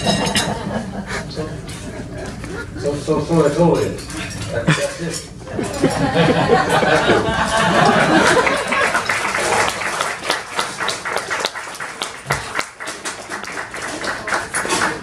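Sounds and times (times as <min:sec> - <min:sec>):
audience applauding: 0:06.1 - 0:15.0.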